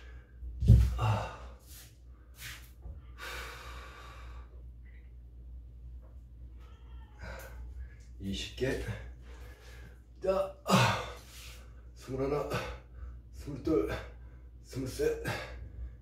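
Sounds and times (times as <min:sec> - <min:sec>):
man breathing hard: 0:00.0 - 0:02.5, 0:03.2 - 0:04.6.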